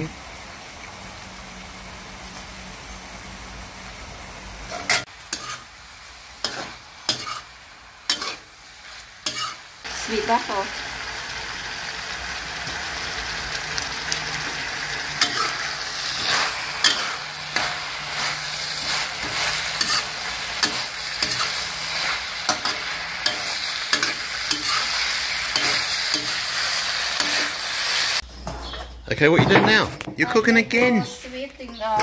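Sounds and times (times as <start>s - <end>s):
food sizzling in a wok: 0.0s - 28.2s
metal spatula scraping a wok: 4.7s - 5.7s, 6.4s - 9.7s, 15.2s - 28.9s.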